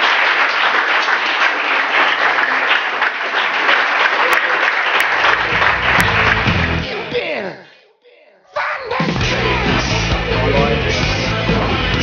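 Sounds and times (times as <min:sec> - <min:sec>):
small crowd applauding: 0:00.0 - 0:07.1
music: 0:05.4 - 0:07.1, 0:09.0 - 0:12.0.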